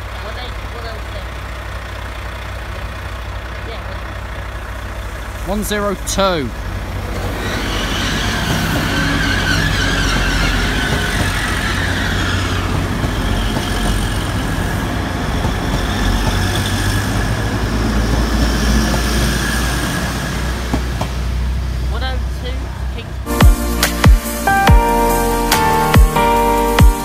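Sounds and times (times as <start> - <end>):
diesel train rumbling past: 0.0 - 27.0
high whine: 23.3 - 27.0.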